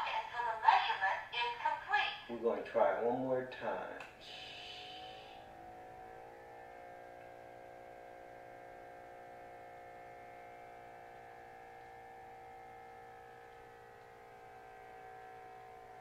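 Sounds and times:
small pump motor whining: 4.1s - 16.0s.

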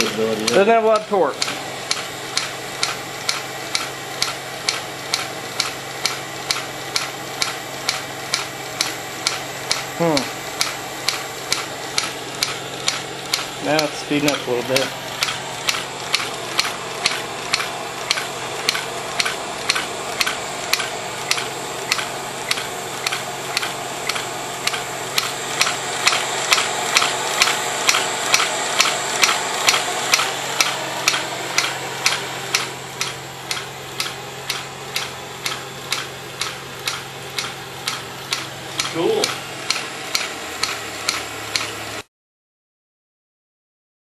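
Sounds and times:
engine mechanical clacking: 0.0s - 42.0s.

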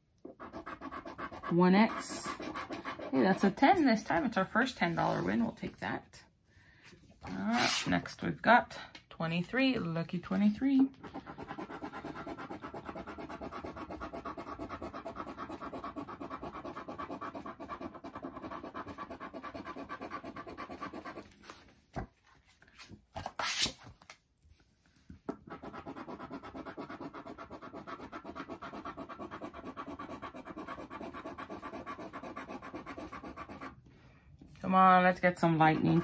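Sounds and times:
scratching lottery ticket: 0.3s - 3.4s, 11.0s - 21.3s, 25.5s - 33.7s, 35.5s - 36.0s.

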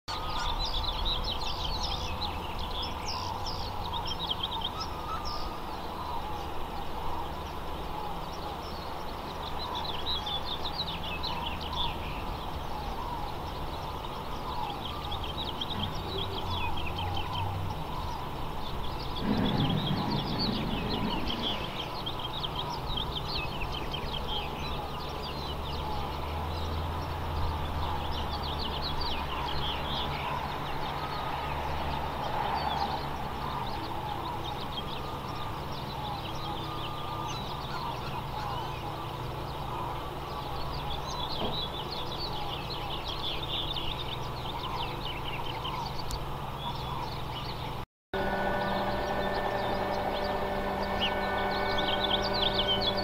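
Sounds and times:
small birds chirping: 0.1s - 53.0s
garbage truck engine rumble: 19.1s - 22.9s, 48.2s - 53.0s.

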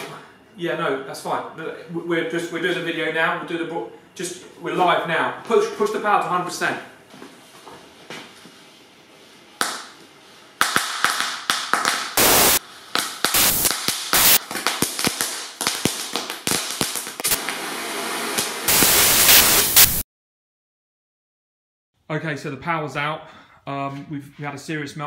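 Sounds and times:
pyrotechnic cracks and bursts: 10.6s - 20.0s
loud steady hiss: 12.1s - 20.0s.

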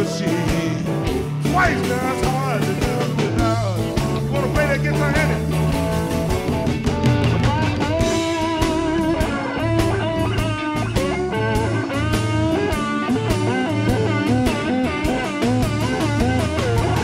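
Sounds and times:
bass line: 0.0s - 17.0s
bending lead guitar line: 0.0s - 17.0s.

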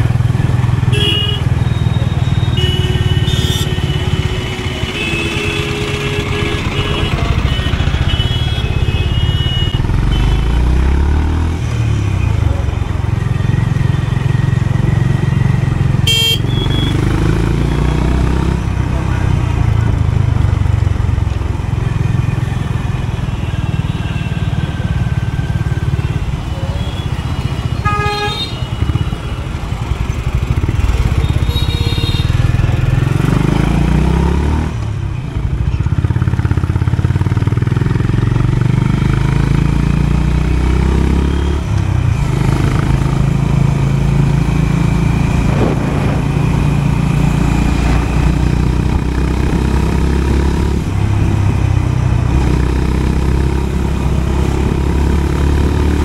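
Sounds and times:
motorcycle engine running: 12.4s - 56.0s
horn toot: 16.0s - 17.1s.

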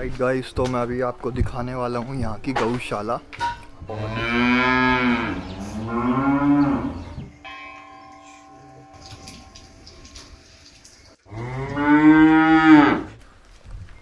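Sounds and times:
cow mooing: 3.9s - 7.3s, 11.3s - 13.1s
faint steady ringing tone: 7.3s - 10.5s.

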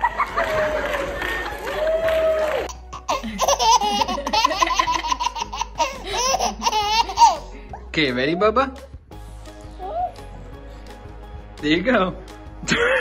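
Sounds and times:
baby laughing: 2.7s - 7.9s.

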